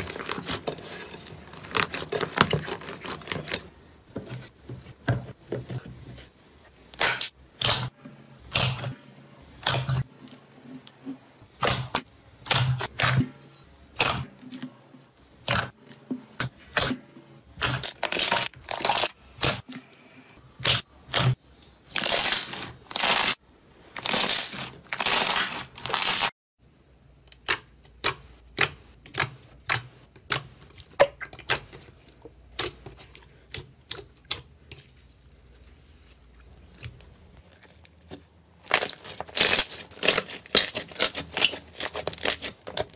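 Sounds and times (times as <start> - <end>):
slime squelching: 0.0 - 3.7, 27.4 - 42.9.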